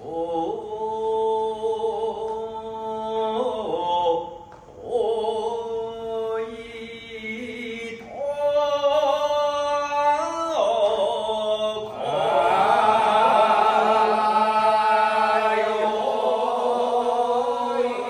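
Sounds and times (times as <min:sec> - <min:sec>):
men chanting work song: 0:10.9 - 0:18.0.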